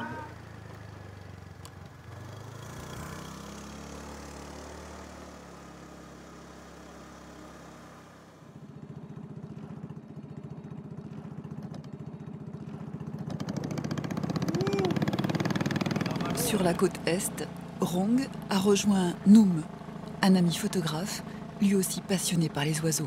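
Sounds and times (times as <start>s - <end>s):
boat engine pulsing: 0.0s - 0.6s, 9.5s - 23.0s
low hum: 16.2s - 23.0s.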